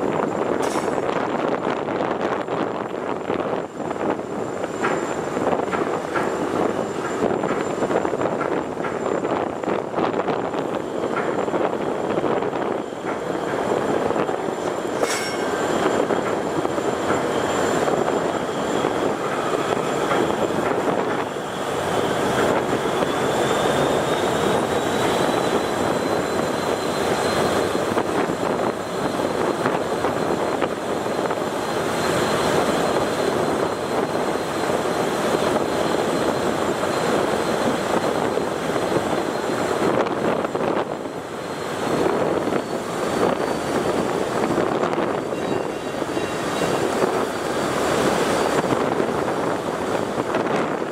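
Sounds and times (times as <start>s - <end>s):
boat engines droning: 0.0s - 50.9s
wind: 0.0s - 50.9s
choppy river water: 13.0s - 50.9s.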